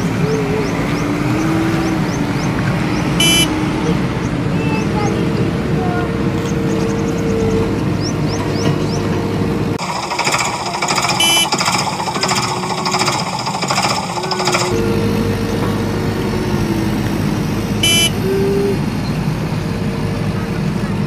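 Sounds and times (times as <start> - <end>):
rattling jackhammer-like engine: 0.0 - 21.0
steady engine hum: 0.0 - 21.0
short beep: 3.2 - 3.6, 11.2 - 11.6, 17.8 - 18.2.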